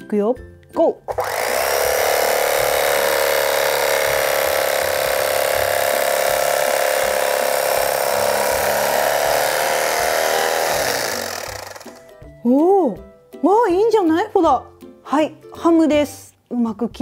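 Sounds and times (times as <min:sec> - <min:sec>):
electric carving knife buzzing: 0:01.1 - 0:12.1.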